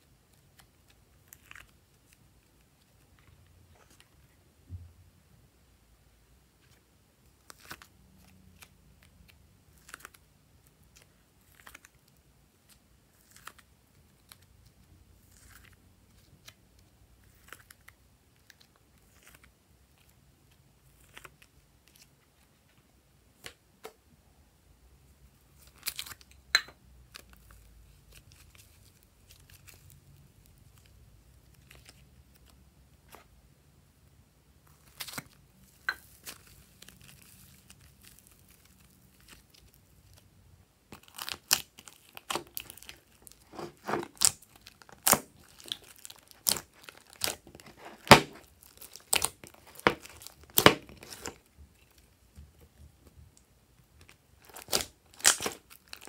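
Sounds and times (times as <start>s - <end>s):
modelling clay tearing: 6.6s - 22.4s, 40.9s - 52.2s, 54.0s - 56.0s.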